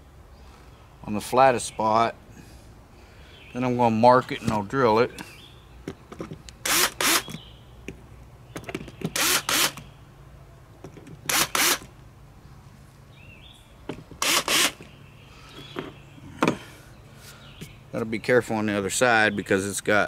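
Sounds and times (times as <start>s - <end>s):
cordless drill spinning: 6.6s - 7.3s, 9.2s - 9.8s, 11.3s - 11.9s, 14.2s - 14.8s.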